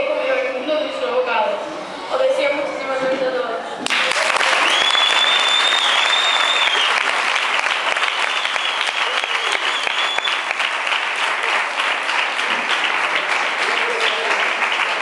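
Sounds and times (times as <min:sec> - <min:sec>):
audience applauding: 0:03.8 - 0:15.0.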